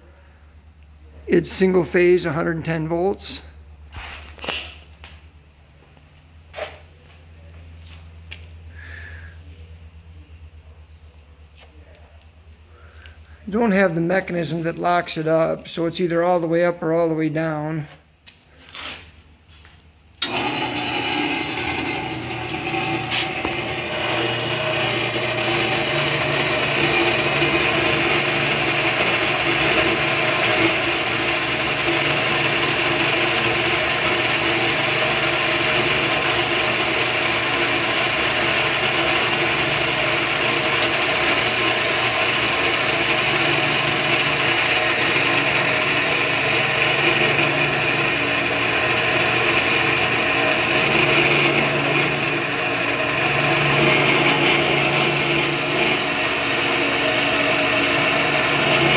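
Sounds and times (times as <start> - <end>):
motor hum: 19.5 - 58.9
bandsaw cutting metal tube: 20.2 - 58.9.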